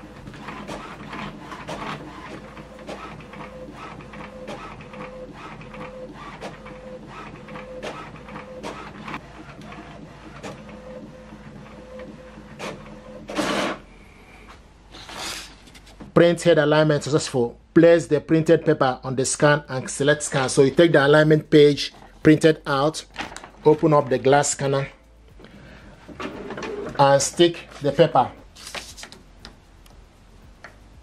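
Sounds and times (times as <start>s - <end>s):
printer mechanism humming and clicking: 0.0s - 14.5s, 25.4s - 28.2s
printer page feed whir: 0.0s - 15.5s, 25.4s - 29.2s.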